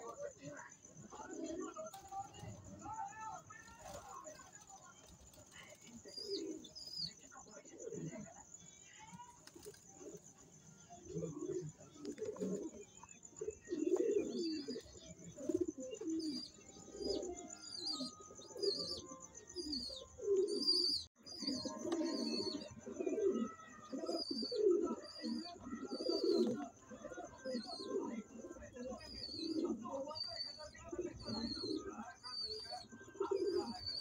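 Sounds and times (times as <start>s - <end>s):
pigeons cooing: 0.0s - 2.8s, 3.4s - 8.4s, 9.3s - 34.0s.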